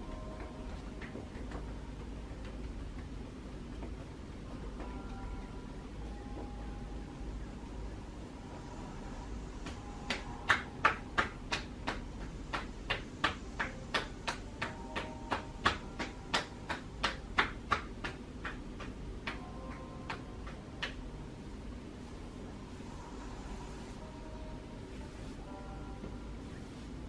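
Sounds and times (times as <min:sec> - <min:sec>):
hands slapping on shoulders: 0:09.6 - 0:21.0.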